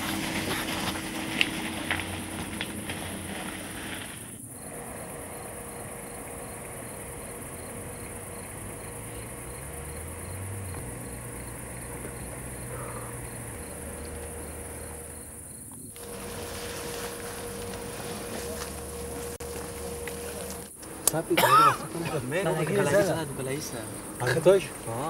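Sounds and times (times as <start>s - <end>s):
cricket chirping: 2.0s - 25.0s
steady hum: 12.4s - 25.0s.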